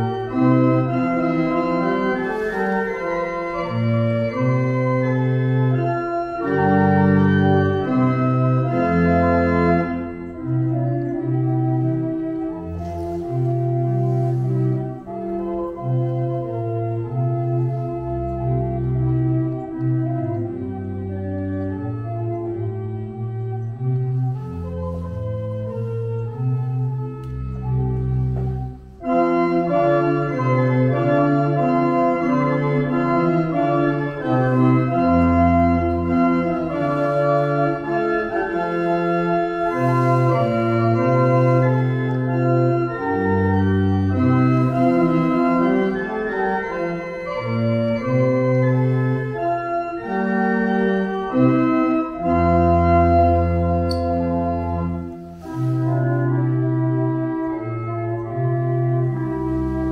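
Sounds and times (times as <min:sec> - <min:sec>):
pipe organ chords: 0:00.0 - 0:59.9.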